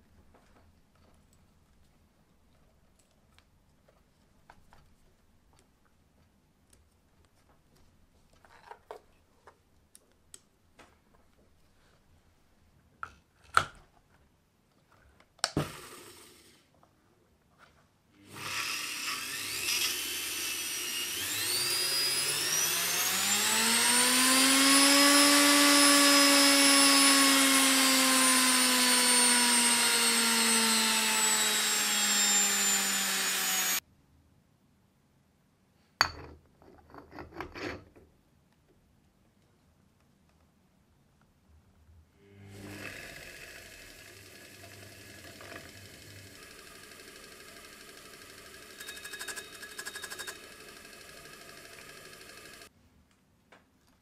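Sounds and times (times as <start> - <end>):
electric motor whine: 18.2 - 33.8, 42.2 - 52.7.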